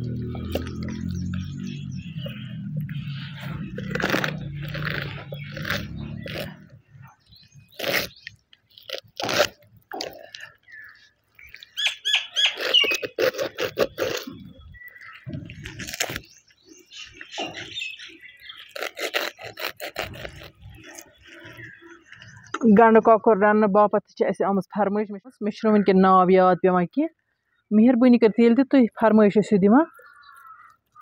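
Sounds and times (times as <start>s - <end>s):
bird calls: 0.0s - 23.4s, 29.8s - 31.0s
knife cutting raw chicken: 18.6s - 21.0s.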